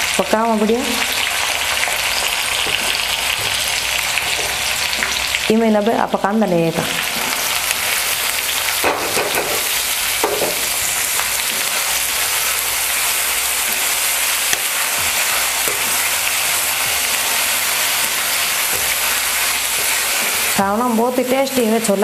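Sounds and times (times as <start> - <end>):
onion sizzling in hot oil: 0.0 - 22.0
metal ladle scraping pan: 8.7 - 20.7.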